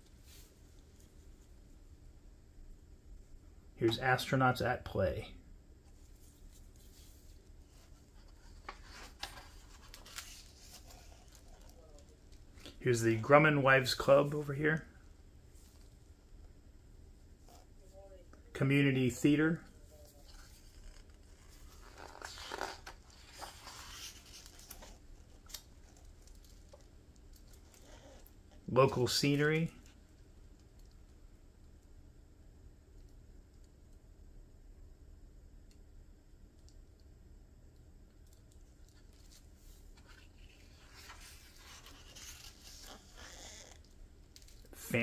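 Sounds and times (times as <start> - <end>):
paper rustling: 6.0 - 12.8, 19.9 - 26.8, 38.9 - 43.8.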